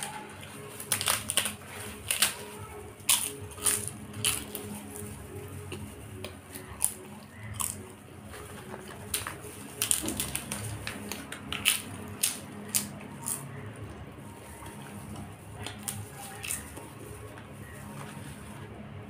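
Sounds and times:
crisp papad breaking: 0.0s - 13.7s
chewing crunchy food: 0.0s - 19.0s.

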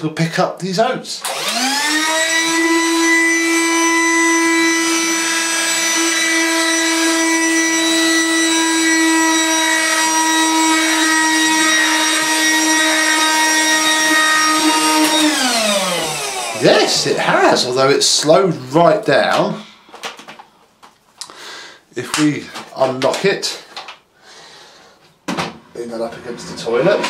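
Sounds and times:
electric floor sweeper whine: 1.2s - 17.6s, 26.0s - 27.0s.

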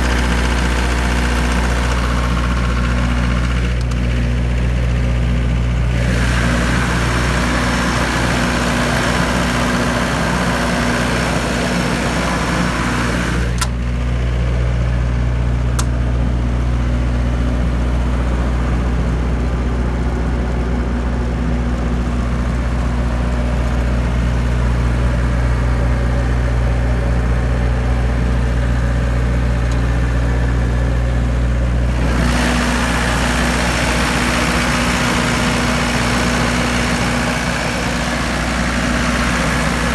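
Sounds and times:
diesel generator humming: 0.0s - 39.9s
sharp clicks: 15.8s - 16.0s.

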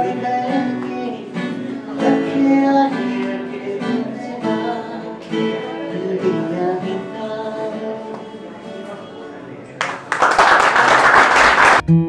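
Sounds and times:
acoustic guitar strumming: 0.0s - 9.5s, 11.8s - 12.0s
man singing: 0.0s - 9.5s.

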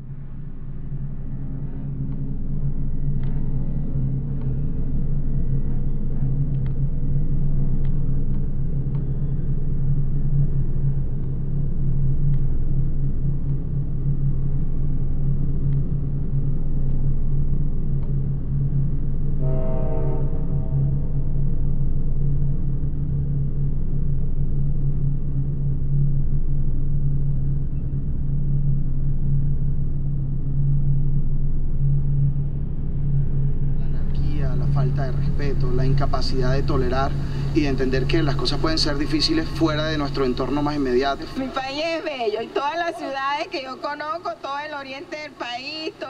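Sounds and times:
low rumbling drone: 0.0s - 46.0s
horn-like pitched tone: 19.4s - 21.1s.

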